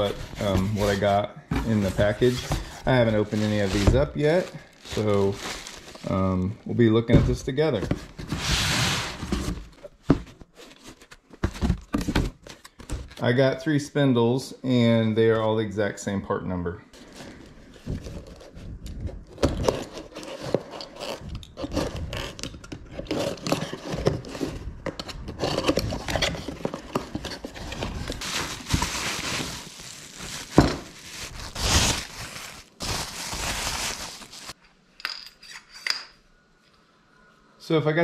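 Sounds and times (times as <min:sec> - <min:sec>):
plastic wrap crinkling: 0:00.0 - 0:06.4, 0:26.4 - 0:34.6.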